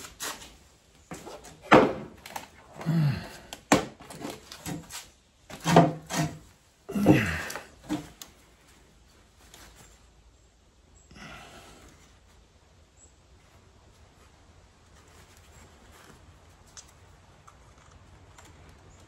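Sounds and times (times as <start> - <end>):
knocks and clunks: 1.1 - 2.4, 5.5 - 8.1.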